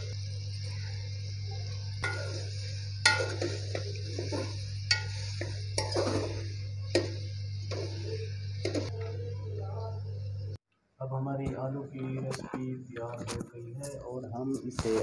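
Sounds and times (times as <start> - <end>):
low hum: 0.0 - 10.6
metal spoon scraping a pot: 2.0 - 8.9.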